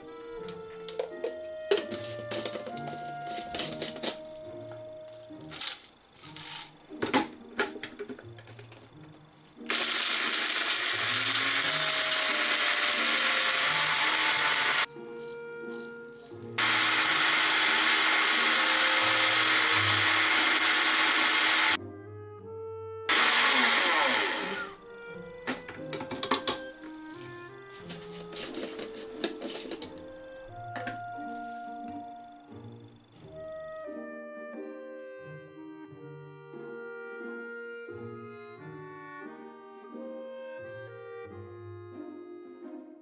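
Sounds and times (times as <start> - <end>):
light background music: 0.0 - 43.0
blender grinding spices: 9.7 - 14.9, 16.6 - 21.8, 23.1 - 24.8.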